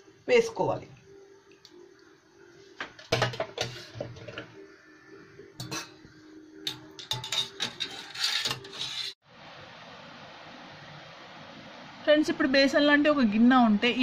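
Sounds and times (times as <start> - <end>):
faint steady hum: 0.0 - 7.3, 9.3 - 14.0
wire strainer clinking against pot: 6.7 - 8.8.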